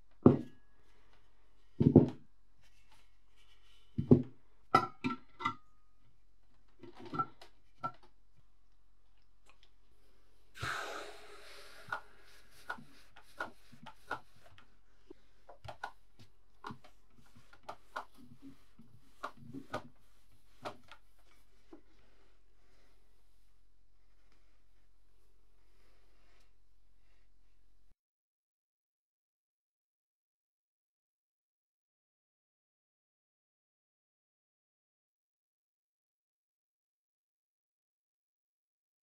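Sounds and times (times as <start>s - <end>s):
hard objects knocking and clicking: 1.8s - 2.2s.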